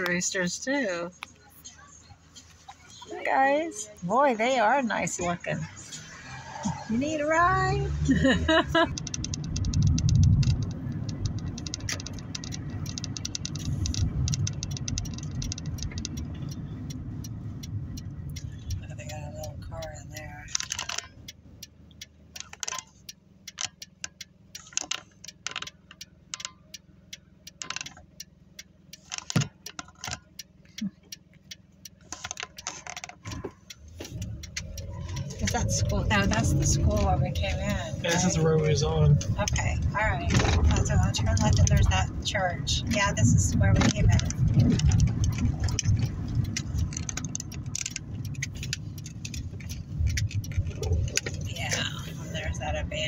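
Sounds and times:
car engine humming: 0.0s - 53.0s
light metallic clicks and jingles: 8.5s - 53.0s.

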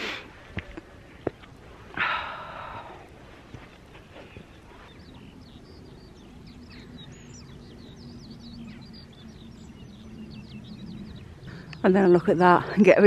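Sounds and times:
soft outdoor noise: 0.0s - 13.0s
faint low hum: 0.1s - 13.0s
small bird chirping: 4.1s - 13.0s.

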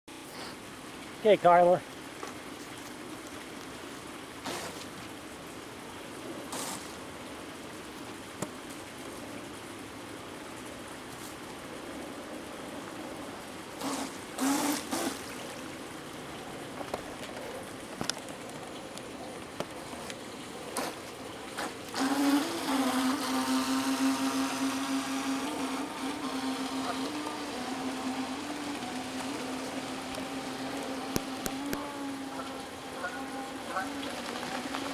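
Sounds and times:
outdoor background hiss: 0.1s - 34.9s
bursts of hiss: 6.5s - 7.0s
model boat motor whining: 13.8s - 15.3s, 21.6s - 34.9s.

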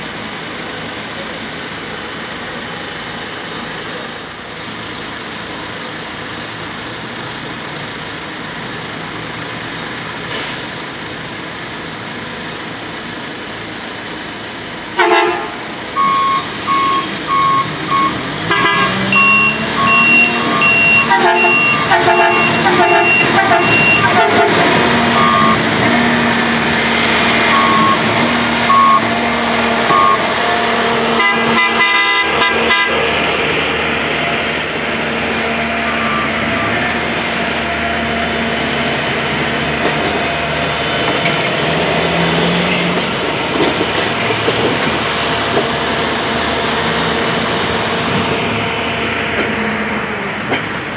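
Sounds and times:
diesel engines humming: 0.0s - 50.9s
warning beepers: 16.0s - 25.7s, 27.5s - 28.1s, 28.7s - 29.1s, 29.9s - 30.3s, 35.8s - 36.8s.

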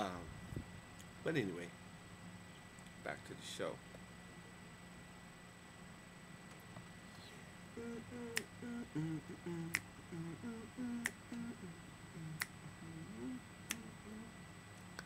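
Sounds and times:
man humming a slow tune: 7.2s - 14.4s
finger snapping: 8.3s - 8.5s, 9.6s - 9.9s, 11.0s - 11.5s, 12.3s - 12.6s, 13.6s - 14.0s, 14.8s - 15.0s.

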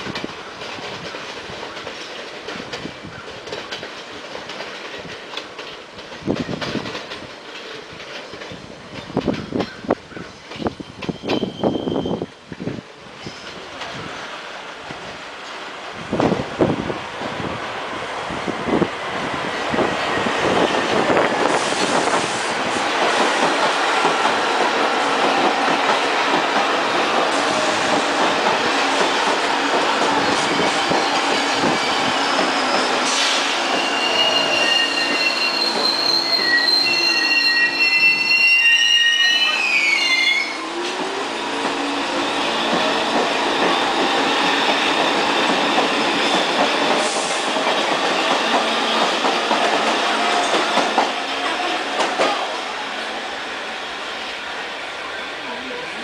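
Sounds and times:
train wheels rumbling on rail: 0.0s - 56.0s
train wheels squealing: 9.1s - 12.4s, 30.0s - 40.8s, 41.8s - 49.5s.

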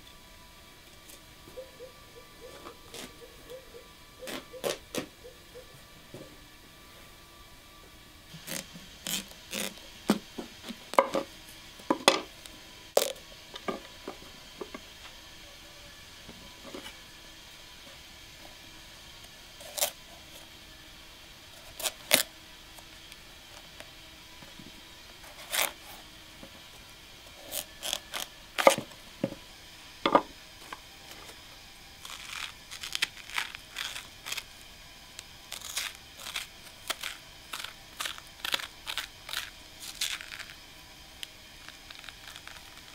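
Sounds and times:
spoon scraping pumpkin seeds: 8.3s - 9.8s, 27.3s - 28.8s, 32.0s - 34.6s, 35.5s - 40.6s, 41.2s - 42.9s
knife cracking through pumpkin rind: 8.3s - 10.9s, 13.0s - 13.2s, 19.6s - 20.0s, 21.6s - 22.3s, 25.2s - 25.8s, 27.3s - 28.9s, 32.0s - 42.9s.

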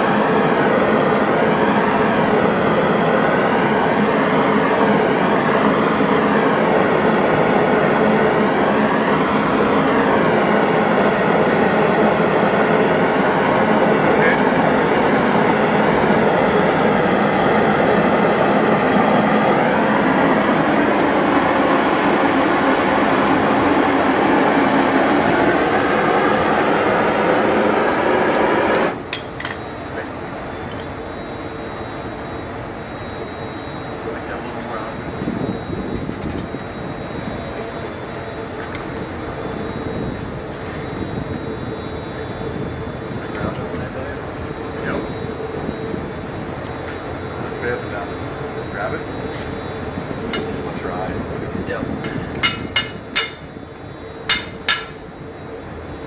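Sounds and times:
gas torch roaring: 0.0s - 56.0s.

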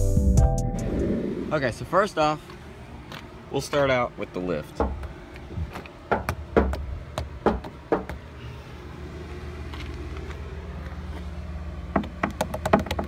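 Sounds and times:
vehicle engine idling: 0.8s - 13.0s
sharp knocks: 6.1s - 8.2s, 11.9s - 13.0s.

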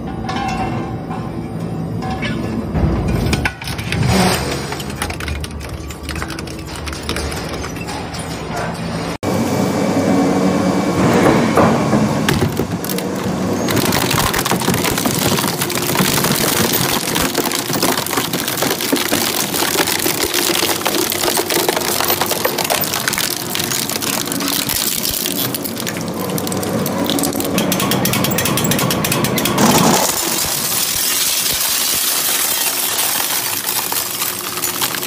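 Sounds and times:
shredder crunching plastic shell: 12.3s - 35.0s.

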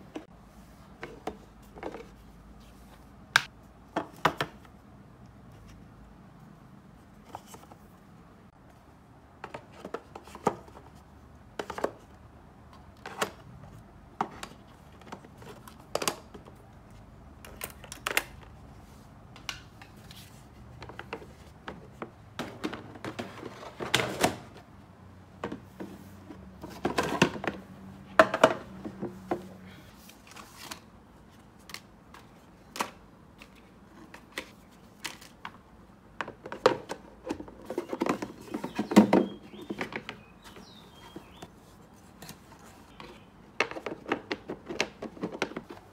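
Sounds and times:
plastic bins clicking and knocking: 3.4s - 4.7s, 9.4s - 16.7s, 20.7s - 24.7s, 25.3s - 29.5s, 31.6s - 41.5s, 42.1s - 45.9s.

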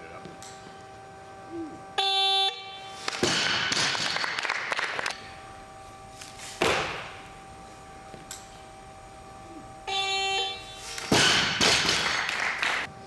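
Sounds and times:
buzzer signal tone: 2.0s - 3.0s, 6.9s - 11.1s.

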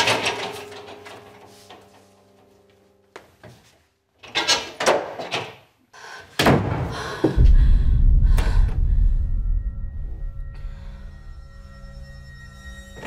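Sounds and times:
deep low rumble: 7.4s - 12.9s.

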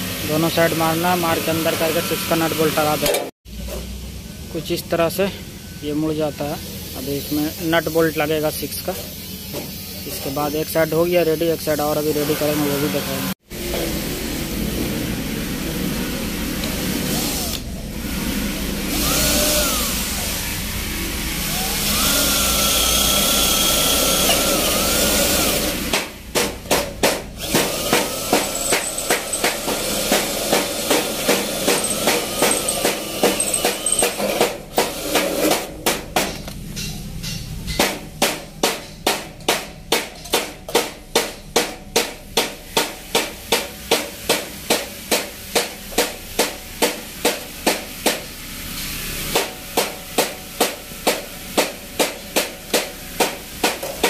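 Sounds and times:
drill boring through metal: 0.1s - 3.1s, 9.8s - 13.3s, 16.6s - 26.0s, 27.4s - 35.2s
drill squealing: 1.3s - 3.0s, 18.9s - 20.5s, 21.4s - 25.8s, 27.4s - 34.2s.

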